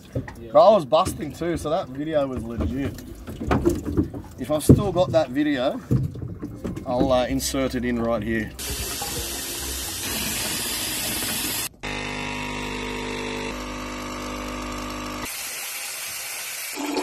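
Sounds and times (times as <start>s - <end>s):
basin tap running: 7.6s - 17.0s
espresso machine pump humming: 8.6s - 17.0s.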